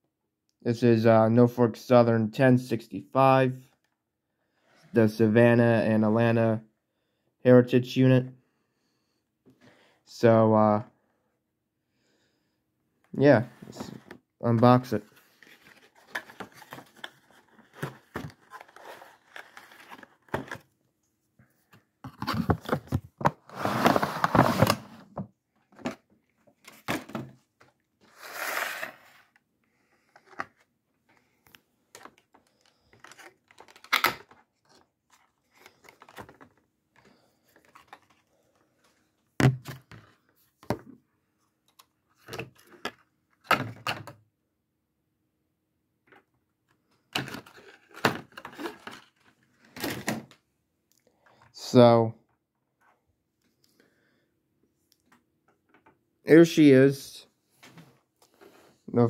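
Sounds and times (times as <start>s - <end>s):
packaging rustling and tearing: 15.2s - 20.6s, 47.2s - 49.4s.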